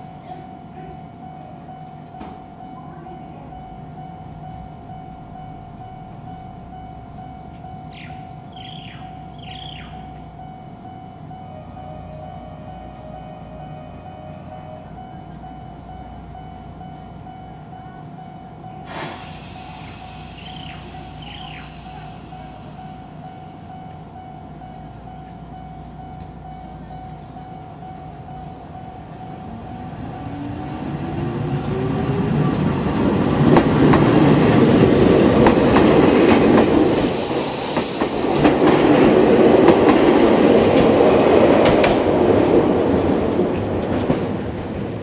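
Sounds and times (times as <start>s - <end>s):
train hum with high tone: 0.0s - 45.0s
train air hiss: 14.3s - 15.2s, 18.8s - 24.1s, 36.0s - 39.5s.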